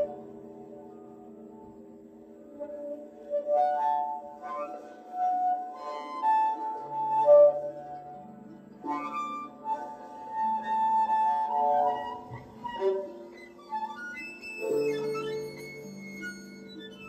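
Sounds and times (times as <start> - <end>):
bowed string instrument: 0.0 - 17.0
ringing pitched tones: 11.5 - 17.0.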